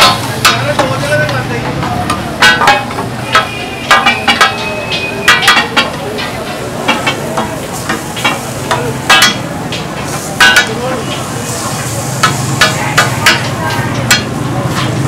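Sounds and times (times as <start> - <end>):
chicken sizzling on griddle: 0.0 - 15.0
metal spatulas clanking on griddle: 0.0 - 15.0.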